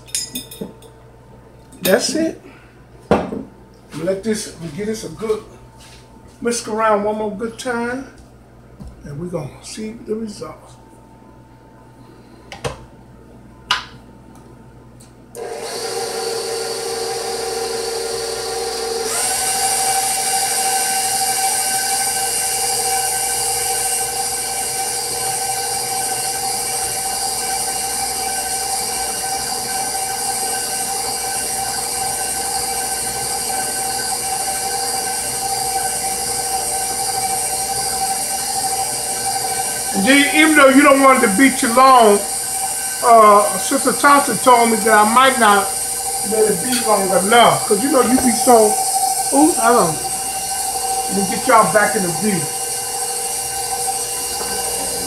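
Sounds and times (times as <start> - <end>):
stand mixer whining: 15.4 - 55.0.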